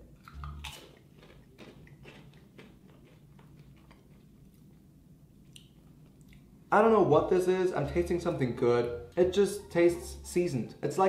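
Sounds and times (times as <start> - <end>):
potato chip crunching: 0.2 - 4.8.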